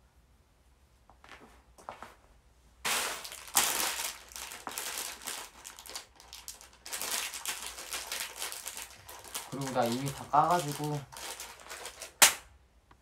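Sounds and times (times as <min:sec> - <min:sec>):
plastic bags crinkling: 0:02.8 - 0:12.4.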